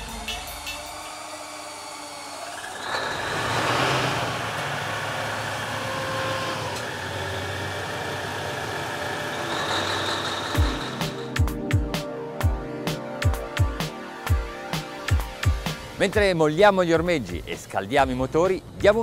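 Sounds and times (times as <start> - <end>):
diesel engine starting and running: 0.0 - 11.5.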